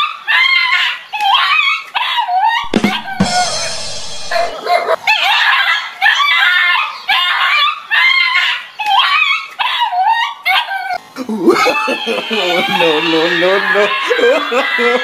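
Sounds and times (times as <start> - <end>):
loud rough noise burst: 2.6 - 4.6.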